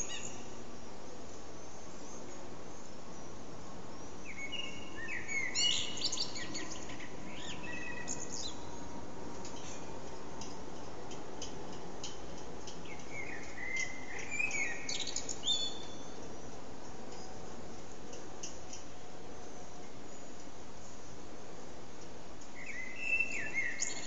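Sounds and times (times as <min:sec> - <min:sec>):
blackbird singing: 0:00.0 - 0:00.6, 0:04.2 - 0:08.8, 0:12.8 - 0:16.2, 0:22.6 - 0:24.0.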